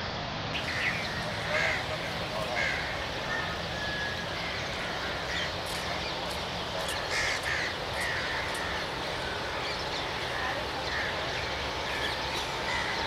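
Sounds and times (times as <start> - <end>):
outdoor background noise: 0.0 - 13.0
crows cawing: 0.7 - 6.1, 6.8 - 9.5, 10.8 - 13.0.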